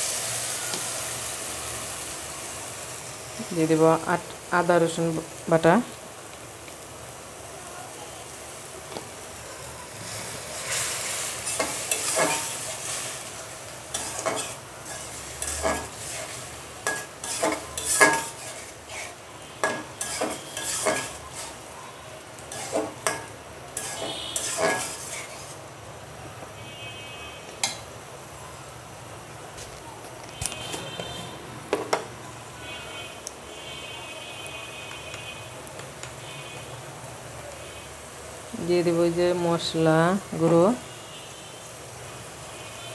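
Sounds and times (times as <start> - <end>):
oil sizzling: 0.0 - 33.6, 34.4 - 42.9
metal spatula scraping a pan: 10.1 - 21.6, 22.5 - 25.6.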